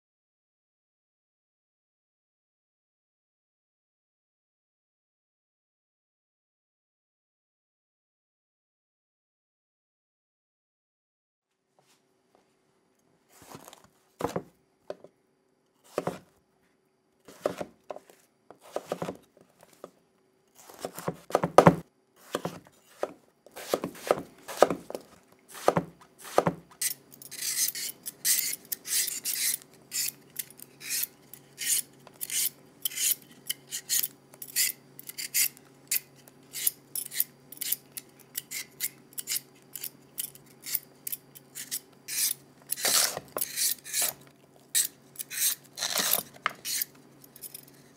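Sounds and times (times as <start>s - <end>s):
peeler scraping root skin: 20.6s - 21.4s, 22.2s - 47.9s.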